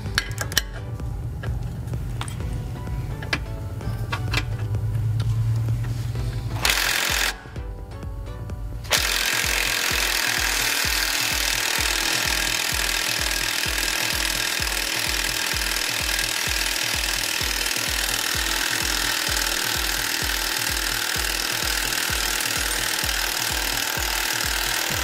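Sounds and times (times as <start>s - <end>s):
impact wrench running: 0.0s - 7.8s, 8.7s - 25.0s
background music with low beat: 0.0s - 25.0s.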